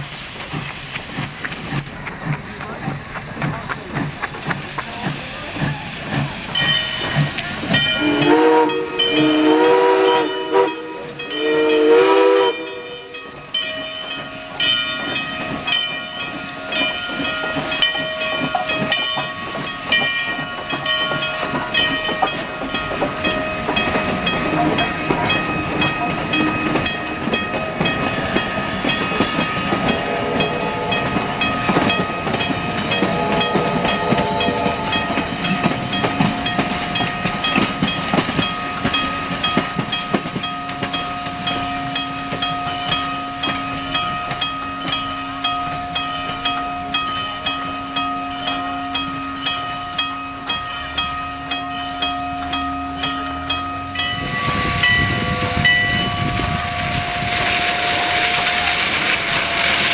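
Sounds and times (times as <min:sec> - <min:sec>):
train cars rolling past: 0:00.0 - 0:59.9
steam locomotive chime whistle: 0:06.6 - 0:59.9.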